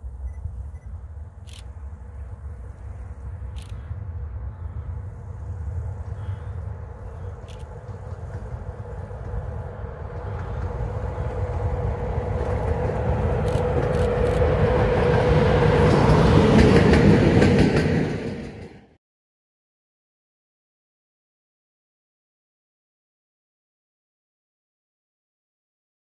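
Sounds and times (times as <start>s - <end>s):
locomotive hum: 0.0s - 18.9s
wheels rumbling on rails: 0.0s - 19.0s.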